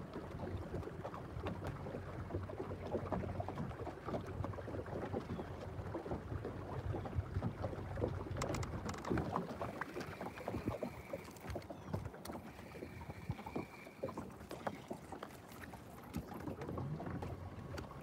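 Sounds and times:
water lapping against boat hull: 0:00.0 - 0:18.0
light clicks and knocks: 0:08.3 - 0:09.5.

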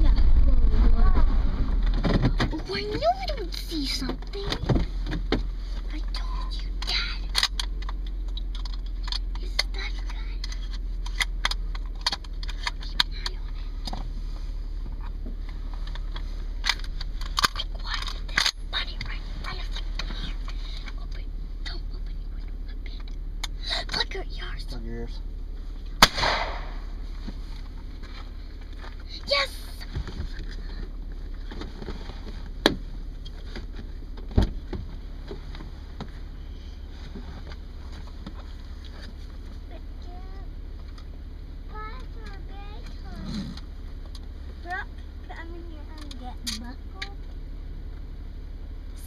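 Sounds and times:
car engine idling: 0:00.0 - 0:49.0
low rumble: 0:00.0 - 0:49.0
shotgun shot: 0:26.0 - 0:26.9.

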